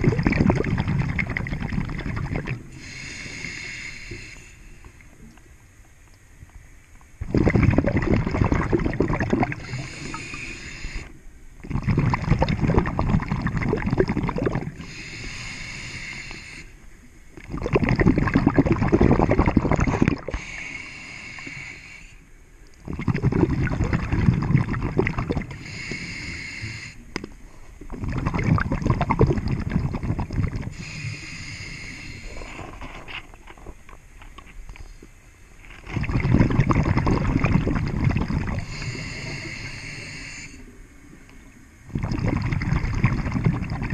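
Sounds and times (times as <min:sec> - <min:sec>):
rush of exhaled bubbles: 0:00.0 - 0:03.6, 0:07.2 - 0:11.0, 0:11.6 - 0:15.3, 0:17.4 - 0:20.6, 0:22.8 - 0:26.0, 0:27.9 - 0:31.2, 0:35.8 - 0:40.2, 0:41.9 - 0:43.9
regulator hiss on inhale: 0:02.6 - 0:05.3, 0:09.6 - 0:11.5, 0:14.7 - 0:17.2, 0:20.3 - 0:22.6, 0:25.4 - 0:27.9, 0:30.6 - 0:33.2, 0:38.6 - 0:41.6.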